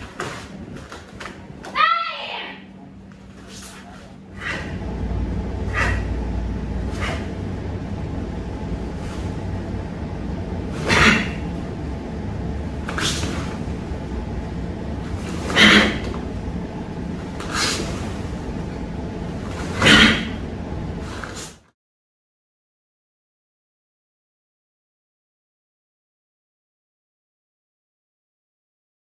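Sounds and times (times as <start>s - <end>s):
low room hum: 0.0s - 21.7s.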